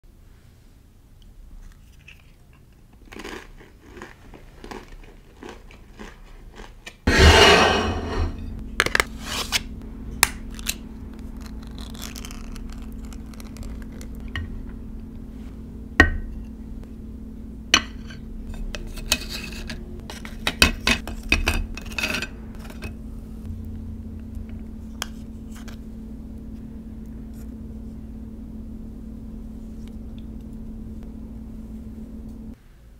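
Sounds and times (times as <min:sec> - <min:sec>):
cracker crunching: 0:02.2 - 0:07.0, 0:10.2 - 0:14.4
loud rush: 0:07.1 - 0:08.5
low hum: 0:07.1 - 0:32.6.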